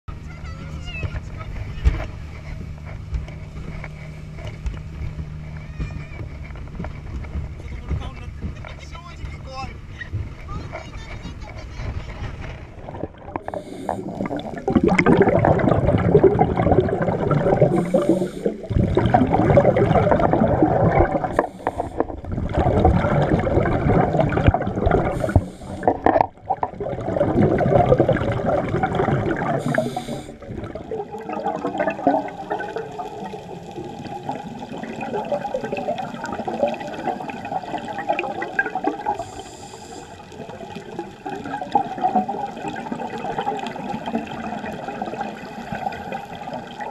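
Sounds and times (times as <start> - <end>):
steady bubbling and crackle: 0.1 - 46.9
exhaled bubbles rushing underwater: 12.2 - 46.9
regulator inhale hiss: 13.5 - 14.3, 17.7 - 18.7, 21.3 - 22.1, 25.1 - 25.9, 29.6 - 30.4, 39.2 - 40.3.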